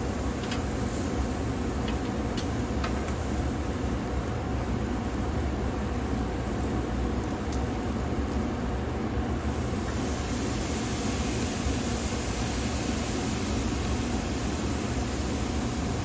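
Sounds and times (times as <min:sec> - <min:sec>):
meat sizzling on a grill: 0:00.0 - 0:16.0.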